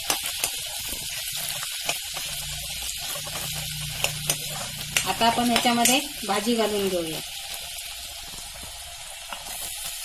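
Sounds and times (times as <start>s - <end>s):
metal spatula scraping a pan: 0.0s - 5.8s
vegetables sizzling in hot oil: 0.0s - 10.0s.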